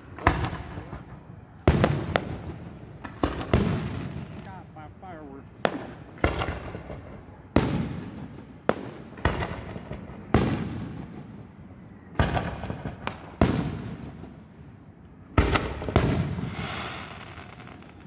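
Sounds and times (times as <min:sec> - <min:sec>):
firework shells bursting: 0:05.5 - 0:14.4, 0:15.0 - 0:18.0.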